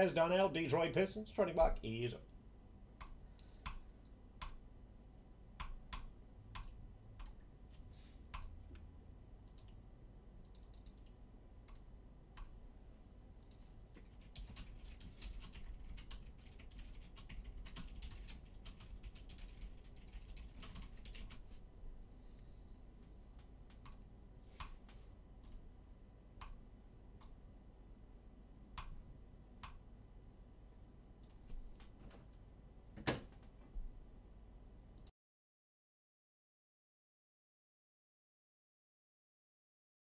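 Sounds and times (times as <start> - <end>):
typing on computer keyboard: 5.6 - 7.4, 10.4 - 12.6, 13.4 - 21.4.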